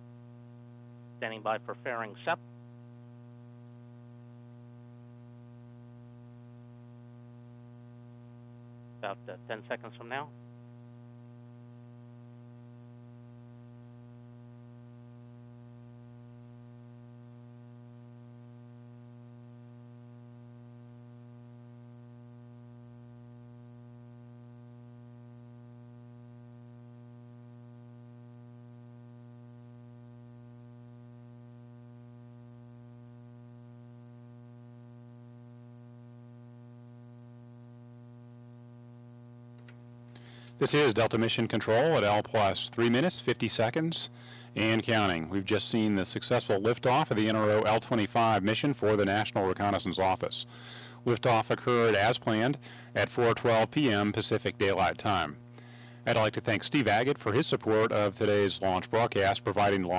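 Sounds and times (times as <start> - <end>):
electrical mains hum: 0.0 - 59.9.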